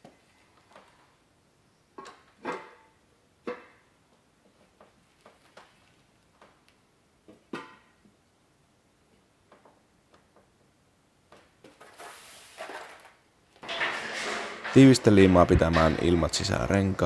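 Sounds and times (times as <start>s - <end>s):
metal wheel parts clanking: 13.6s - 17.0s.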